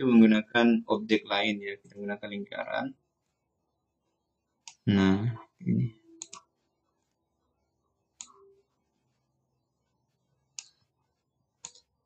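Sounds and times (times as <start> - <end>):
computer mouse clicks: 4.6 - 4.8, 6.2 - 6.5, 8.2 - 8.4, 10.5 - 10.9, 11.6 - 11.9.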